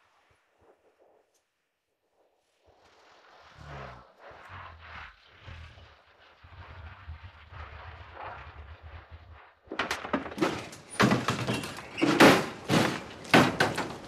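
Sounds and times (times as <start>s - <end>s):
low vehicle engine hum: 3.3s - 9.8s.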